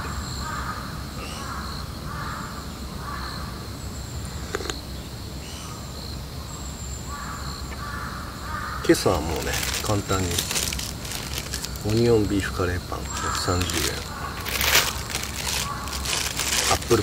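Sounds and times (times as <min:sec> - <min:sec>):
crow cawing: 0:00.4 - 0:03.4, 0:07.1 - 0:12.0, 0:13.0 - 0:17.0.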